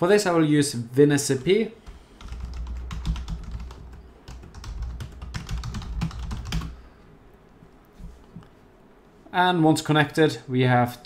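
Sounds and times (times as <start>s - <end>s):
typing on keyboard: 1.9s - 6.8s.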